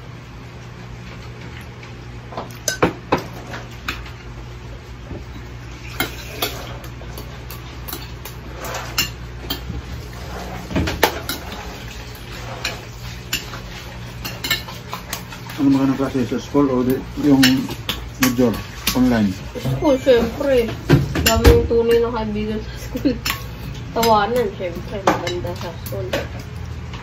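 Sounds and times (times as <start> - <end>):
cutlery clinking on glass plate: 17.2 - 19.1.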